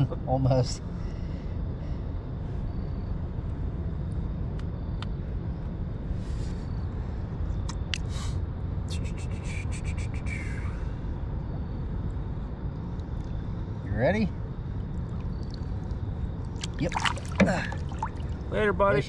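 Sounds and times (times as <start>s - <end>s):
steady low rumble: 0.0s - 19.0s
water splashing and sloshing: 14.9s - 18.6s.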